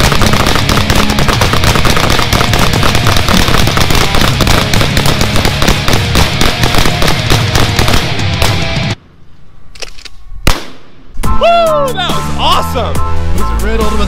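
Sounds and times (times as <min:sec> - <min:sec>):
loud rock music: 0:00.0 - 0:09.0, 0:11.2 - 0:14.0
overlapping gunshots: 0:00.0 - 0:09.0, 0:10.4 - 0:11.2.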